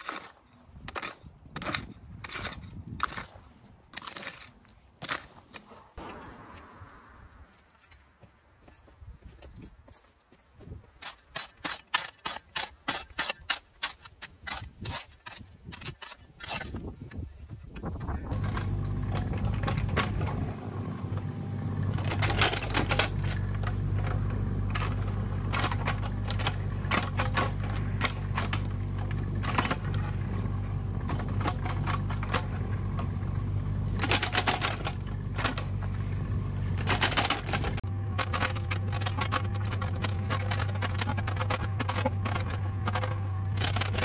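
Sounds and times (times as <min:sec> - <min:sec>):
bucket scraping soil and stones: 0:00.0 - 0:08.0, 0:11.0 - 0:44.0
excavator engine running: 0:17.8 - 0:44.0.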